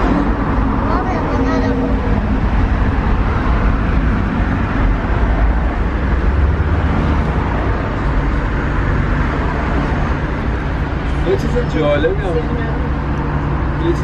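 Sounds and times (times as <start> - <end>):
bus engine and road rumble: 0.0 - 14.0.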